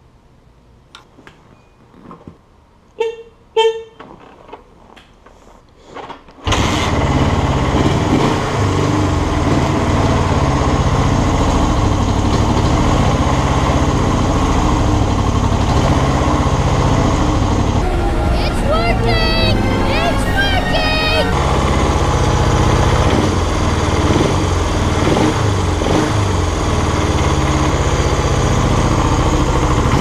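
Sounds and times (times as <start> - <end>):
motorcycle engine running: 6.6 - 17.9, 21.4 - 30.0
short loud beeps: 17.8 - 21.4.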